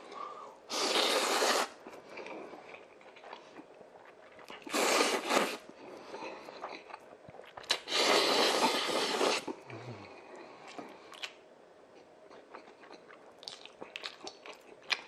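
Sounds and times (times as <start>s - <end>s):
man slurping noodles: 0.7s - 1.8s, 4.7s - 5.6s, 7.8s - 9.5s
quiet chewing and mouth smacks: 1.8s - 4.7s, 5.7s - 7.9s, 9.5s - 15.0s.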